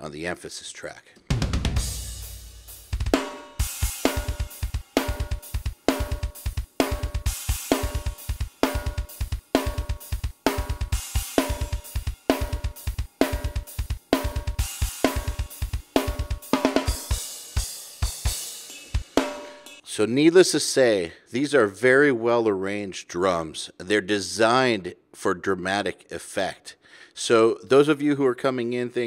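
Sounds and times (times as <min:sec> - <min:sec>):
fast kick drum strokes: 0:01.3 - 0:19.8
cymbals and hi-hat: 0:01.4 - 0:19.8.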